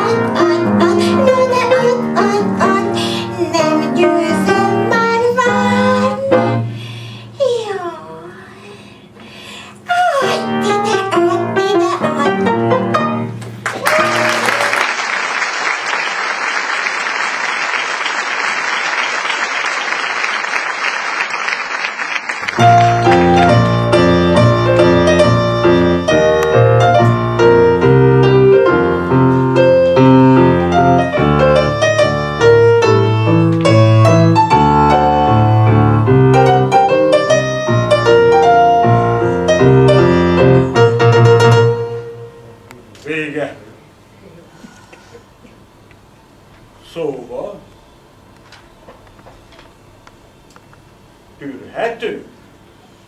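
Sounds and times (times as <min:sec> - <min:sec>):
piano playing light tune: 0:00.0 - 0:06.8, 0:10.1 - 0:14.4, 0:22.4 - 0:42.7
audience applauding: 0:13.4 - 0:23.8
song accompaniment: 0:22.4 - 0:42.6.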